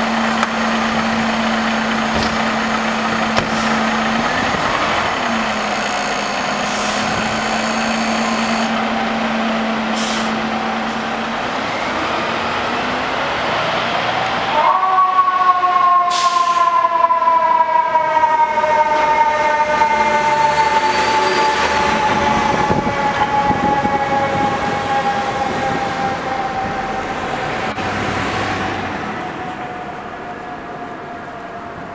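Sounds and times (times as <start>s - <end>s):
mechanical siren winding down: 3.8s - 9.2s.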